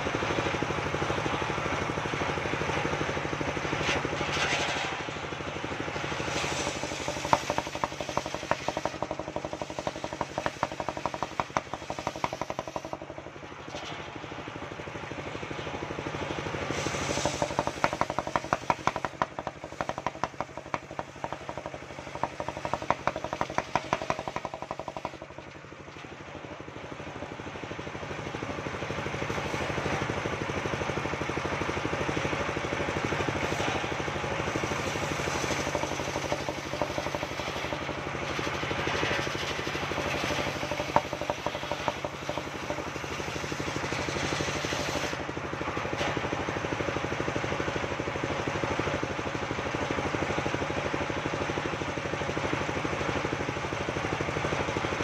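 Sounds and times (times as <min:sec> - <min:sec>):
sawmill engine running: 0:00.0 - 0:55.0
circular saw ripping log: 0:03.7 - 0:05.2, 0:06.0 - 0:13.0, 0:16.6 - 0:25.4, 0:33.4 - 0:45.2.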